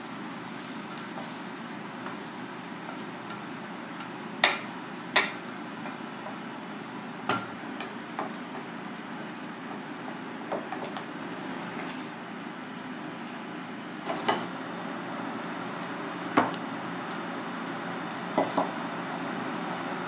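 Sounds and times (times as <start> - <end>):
kitchen hum: 0.0 - 20.0
wok knocking against bowl: 4.4 - 5.4, 7.3 - 7.6.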